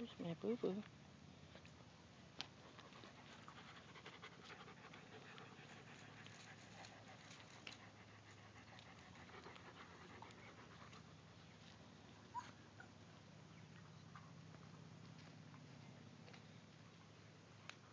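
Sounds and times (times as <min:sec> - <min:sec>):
small ticks and rustles: 0:00.5 - 0:17.9
dog panting: 0:02.5 - 0:11.8.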